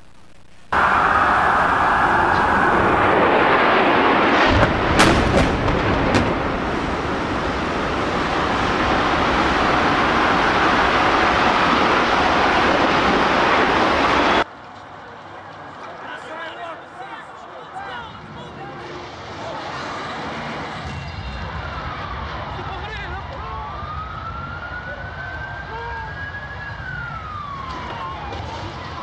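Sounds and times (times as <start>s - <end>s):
heavy continuous rumble: 0.0s - 14.5s
sharp explosion cracks: 0.7s - 14.4s
jet engines rushing overhead: 0.7s - 14.5s, 18.2s - 29.0s.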